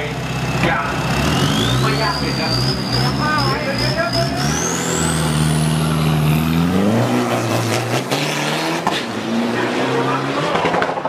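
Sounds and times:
pickup truck engine revving: 0.0 - 11.0
high whine climbing in pitch: 0.9 - 8.1.

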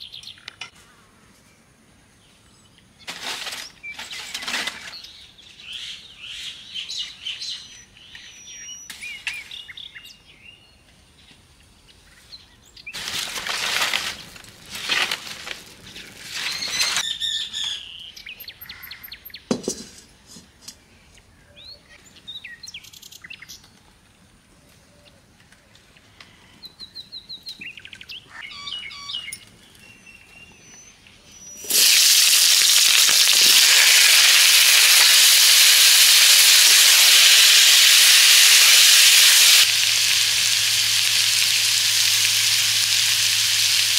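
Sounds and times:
dry palm leaves rustling: 3.0 - 5.0, 13.0 - 17.0, 31.6 - 43.9
vegetables sizzling in hot oil: 31.6 - 43.9.

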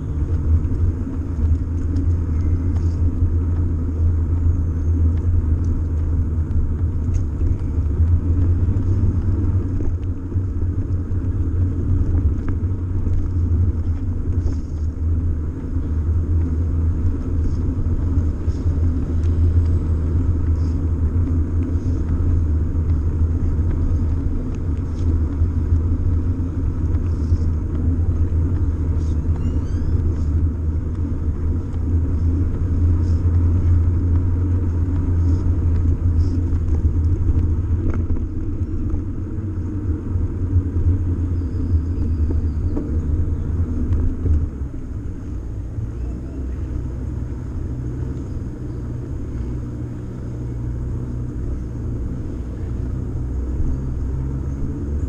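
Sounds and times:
bicycle road vibration rumble: 0.0 - 55.0.

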